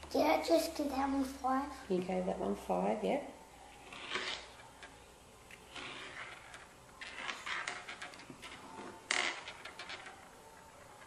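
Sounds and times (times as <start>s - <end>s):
beads scraping and clicking on wood: 3.7s - 11.0s.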